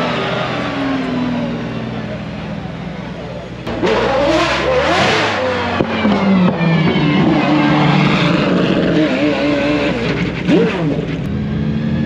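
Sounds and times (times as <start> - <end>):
supercar engines running: 0.0 - 12.0
engine revving: 3.6 - 12.0.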